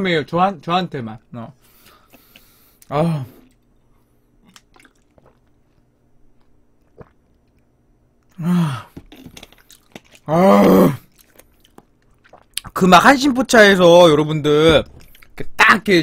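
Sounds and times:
man groaning: 8.4s - 8.9s, 10.3s - 11.0s
loud vocal outburst: 10.3s - 11.0s.

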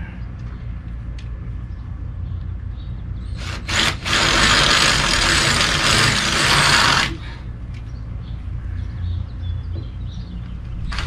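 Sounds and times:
power drill drilling: 3.4s - 7.2s.

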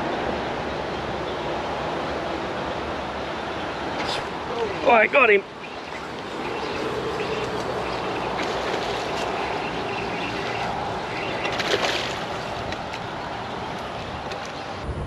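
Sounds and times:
steady rushing noise: 0.0s - 15.0s
fish splashing at the surface: 3.9s - 14.7s.

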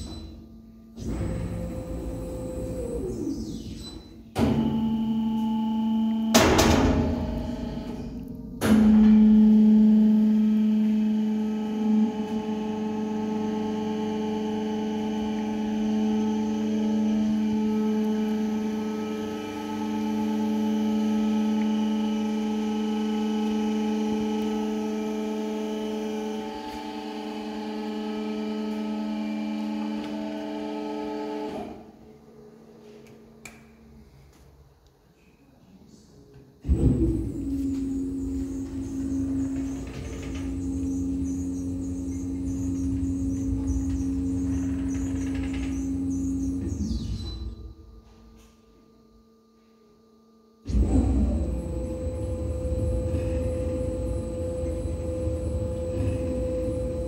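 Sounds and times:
mixer motor humming: 36.6s - 47.0s.

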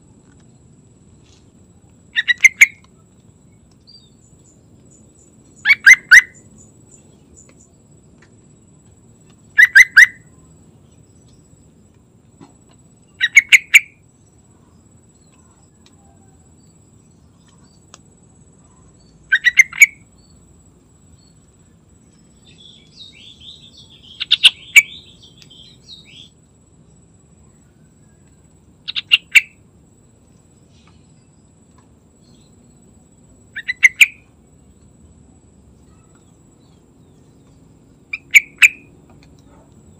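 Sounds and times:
bird chattering: 2.1s - 2.8s, 5.6s - 6.5s, 9.5s - 10.3s, 13.1s - 14.0s, 19.3s - 20.0s, 22.5s - 26.3s, 28.9s - 29.6s, 33.5s - 34.3s, 38.1s - 38.9s.

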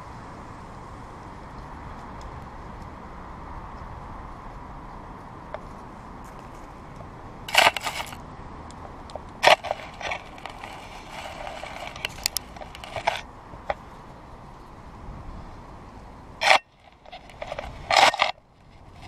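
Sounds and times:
steady background hum: 0.0s - 19.0s
squirrel scrabbling in crusted snow: 7.5s - 8.2s, 9.4s - 13.2s.

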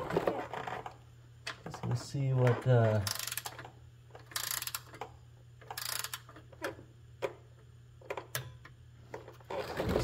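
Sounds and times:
torque wrench clicking: 3.0s - 3.6s, 4.2s - 6.3s
torque wrench ratcheting: 3.0s - 3.6s, 4.2s - 5.0s, 5.6s - 6.3s.

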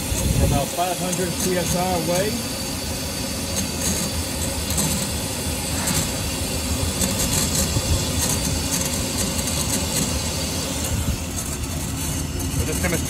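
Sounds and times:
gas hissing through hose: 0.0s - 11.8s
gas dispenser low rumble: 0.0s - 13.0s.

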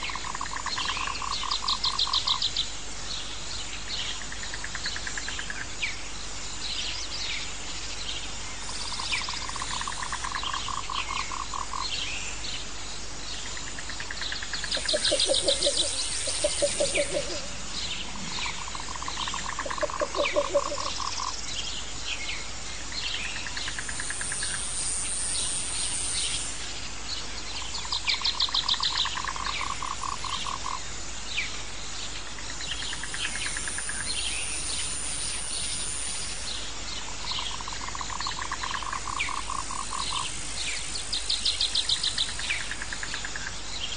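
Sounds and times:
frogs trilling and croaking: 0.0s - 43.9s
high insect trill: 0.0s - 43.9s
birds chirping: 6.7s - 24.7s.

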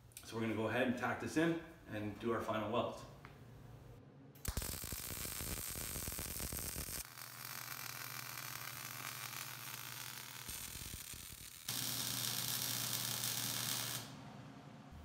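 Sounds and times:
low hum: 3.6s - 4.9s, 14.0s - 15.0s
welding arc crackling: 4.4s - 14.2s.

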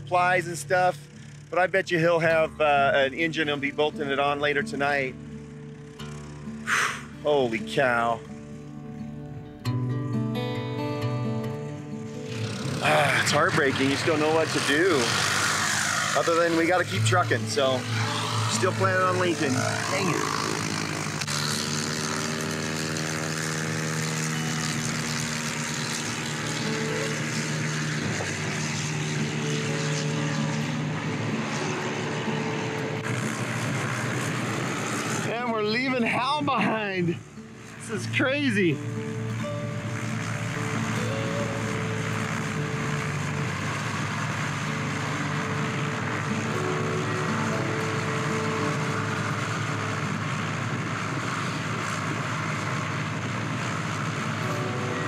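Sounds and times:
propeller plane engine drone: 0.0s - 55.0s
aircraft piston engine idling: 0.9s - 1.6s, 13.1s - 22.1s, 24.9s - 30.0s, 33.0s - 35.3s, 39.9s - 46.3s.

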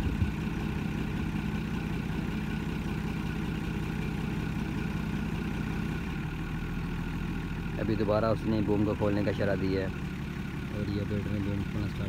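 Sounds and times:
crane diesel engine running: 0.0s - 12.0s.

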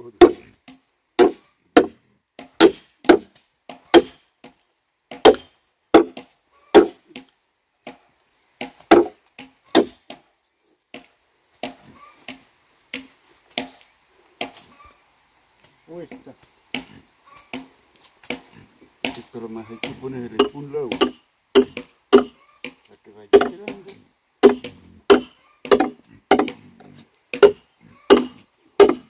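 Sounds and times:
heavy blows splitting a log: 0.2s - 0.4s, 1.2s - 3.3s, 4.0s - 4.2s, 5.1s - 7.2s, 8.6s - 9.2s, 9.8s - 10.2s, 20.4s - 22.4s, 23.4s - 23.8s, 24.4s - 26.6s, 27.3s - 29.0s.

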